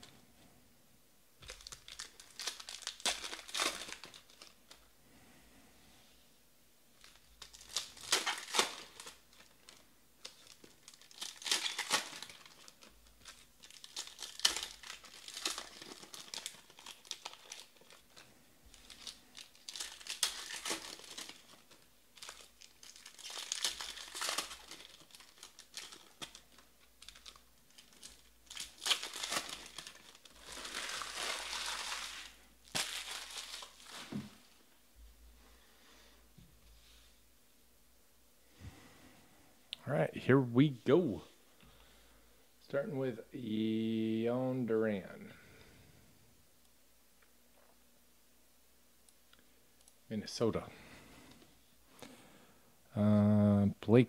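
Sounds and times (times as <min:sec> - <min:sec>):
foil wrappers tearing and crinkling: 0:01.4 - 0:04.8, 0:07.0 - 0:34.6.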